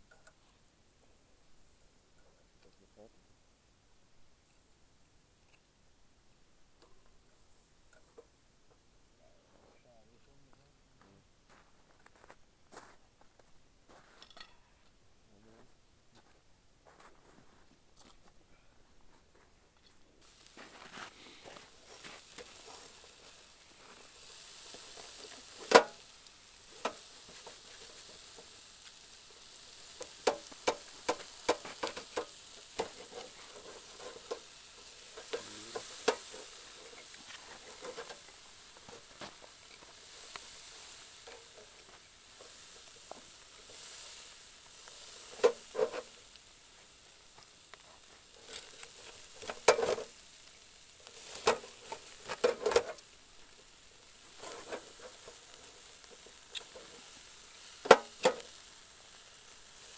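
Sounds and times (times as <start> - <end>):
ribs sizzling on grill: 0.0 - 13.0, 20.1 - 59.9
knife clinking on metal grate: 14.2 - 14.6.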